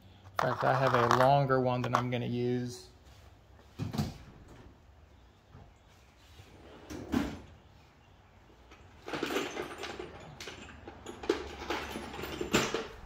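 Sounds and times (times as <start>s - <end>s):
small parts clattering: 0.3s - 2.3s, 8.7s - 13.0s.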